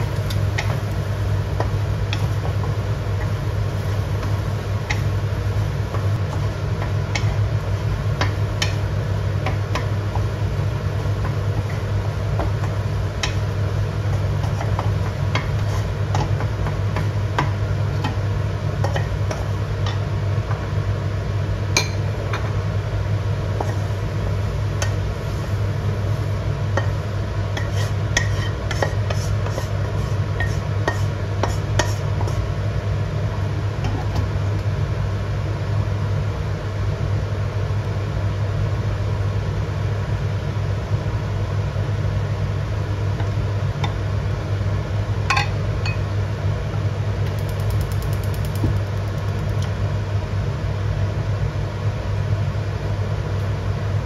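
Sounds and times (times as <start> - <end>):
spatula scraping a wok: 15.4 - 16.0, 27.6 - 32.5.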